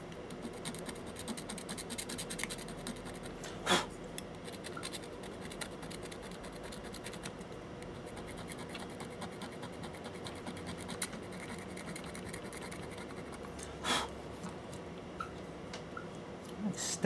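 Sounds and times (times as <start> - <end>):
soldering iron scratching circuit board: 0.4 - 3.4.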